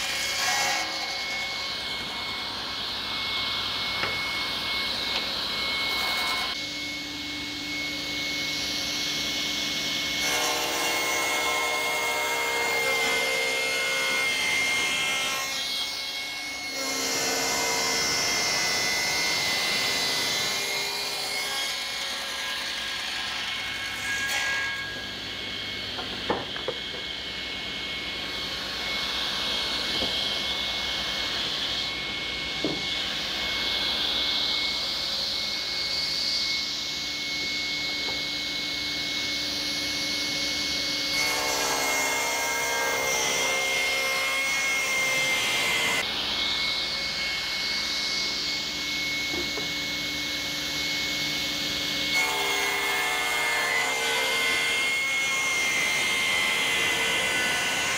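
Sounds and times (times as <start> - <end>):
table saw whining: 0.0 - 57.9
saw blade cutting wood: 10.0 - 25.2.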